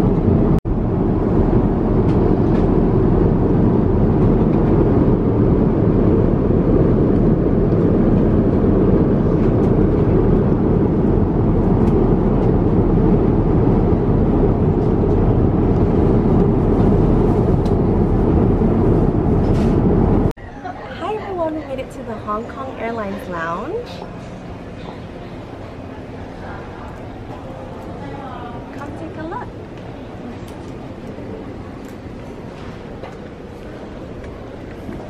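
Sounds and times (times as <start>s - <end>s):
jet airliner cabin noise: 0.0s - 20.5s, 21.2s - 35.0s.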